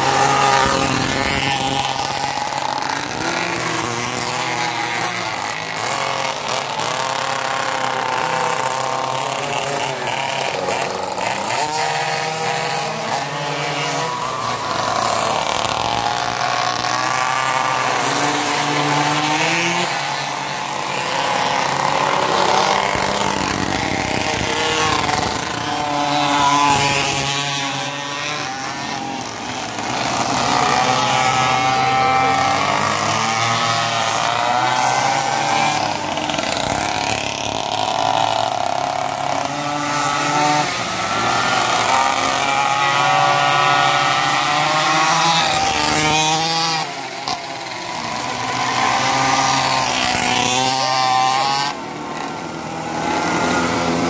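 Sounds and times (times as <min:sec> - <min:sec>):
mini bike engines revving: 0:00.0 - 0:54.0.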